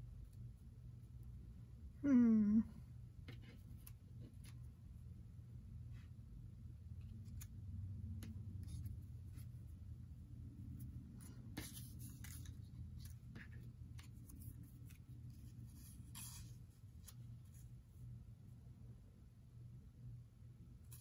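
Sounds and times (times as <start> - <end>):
steady low hum: 0.0 - 21.0
paper rustling and scraping: 11.1 - 17.6.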